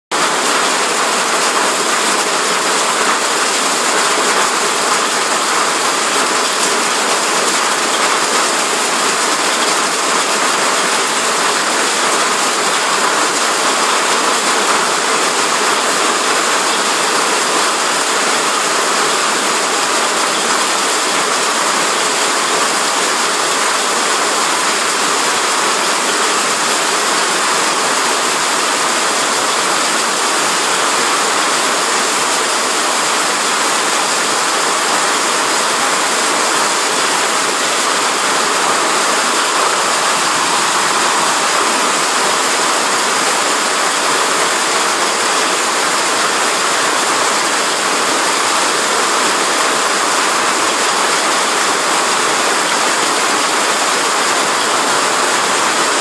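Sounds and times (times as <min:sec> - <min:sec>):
rain and hail on asphalt: 0:00.2 - 0:56.0.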